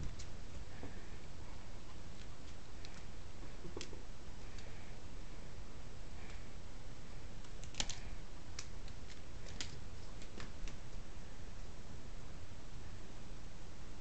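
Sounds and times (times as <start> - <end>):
steady low hum: 0.0 - 14.0
kitten claws clicking on plastic: 7.4 - 10.8.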